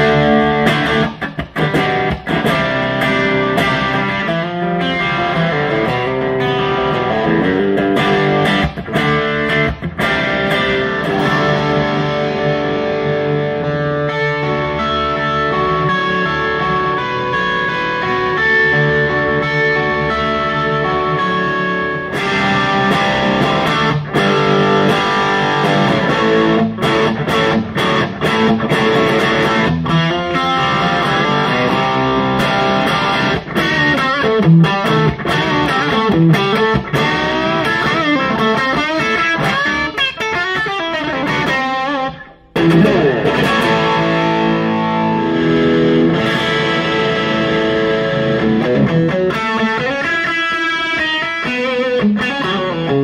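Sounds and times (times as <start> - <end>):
overdriven electric guitar riffs: 0.0 - 53.0.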